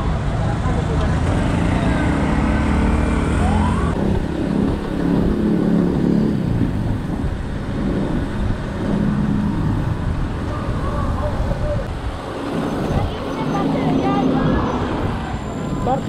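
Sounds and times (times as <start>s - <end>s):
vehicle engines running: 0.0s - 16.0s.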